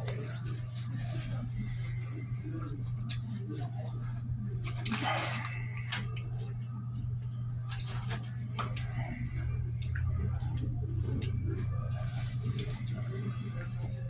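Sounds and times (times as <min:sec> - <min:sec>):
steady low hum: 0:00.0 - 0:14.0
dishes and cutlery clinking: 0:04.8 - 0:06.3.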